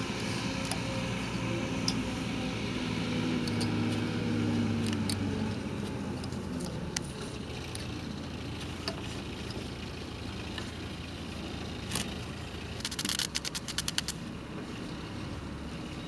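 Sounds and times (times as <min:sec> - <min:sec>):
small clicks: 0:12.8 - 0:14.2
wire twisting ticks: 0:12.8 - 0:14.2.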